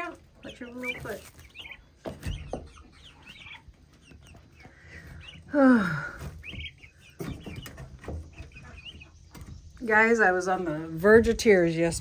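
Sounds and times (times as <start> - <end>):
chicks peeping and chirping: 0.0 - 12.0.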